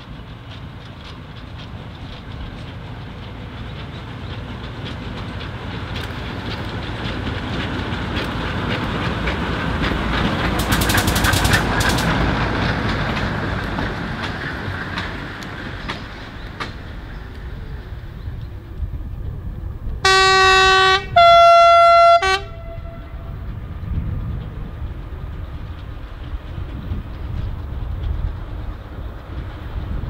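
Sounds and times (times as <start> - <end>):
diesel locomotive passing: 0.0 - 30.0
wheels clicking over rail joints: 0.0 - 30.0.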